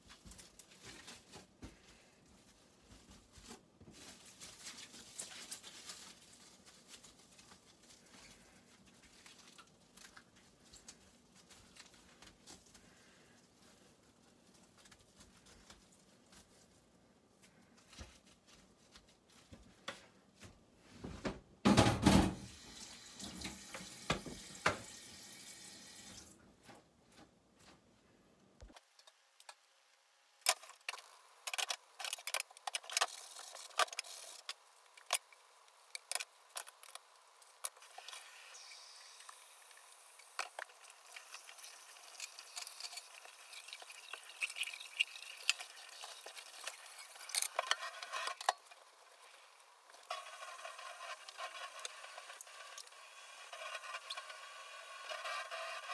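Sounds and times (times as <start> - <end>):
cling film crinkling: 2.4 - 19.6, 30.4 - 55.9.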